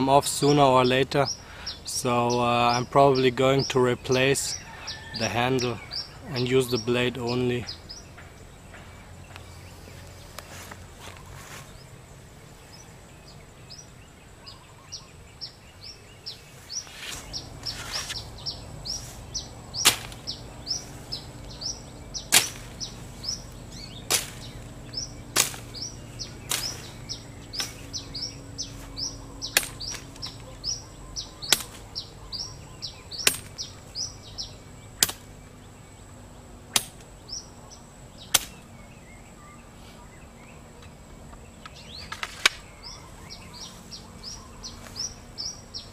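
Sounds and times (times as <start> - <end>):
birds chirping: 0.0 - 45.9
machete chopping through brush: 16.7 - 30.4, 31.4 - 32.0, 33.1 - 34.1, 35.0 - 35.4, 36.7 - 37.1, 38.2 - 38.7.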